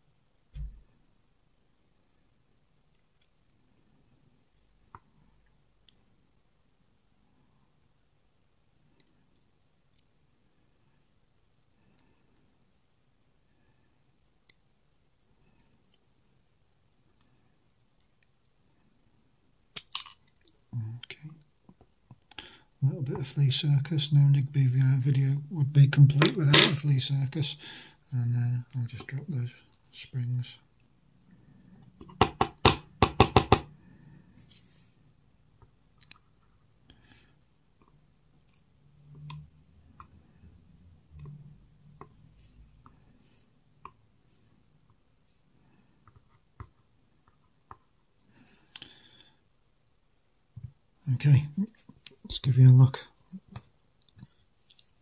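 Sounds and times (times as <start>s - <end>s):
knock: 32.2s - 33.7s.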